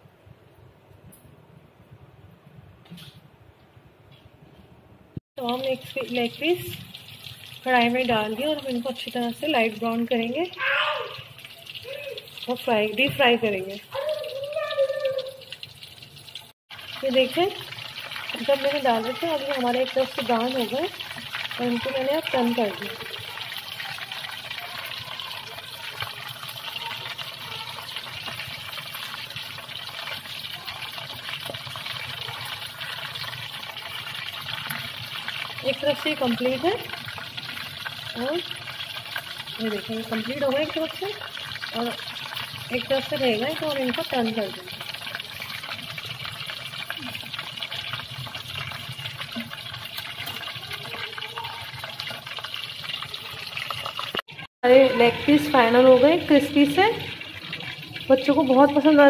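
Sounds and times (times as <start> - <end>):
chicken deep-frying in oil: 5.4 - 59.0.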